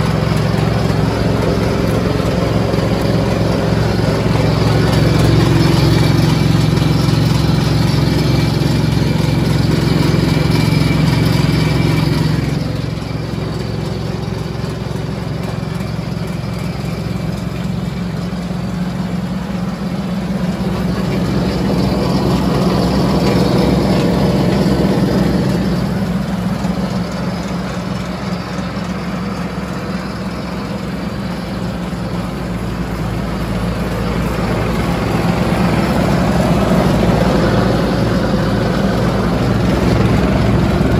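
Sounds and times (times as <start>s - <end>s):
diesel engine running: 0.0s - 40.9s.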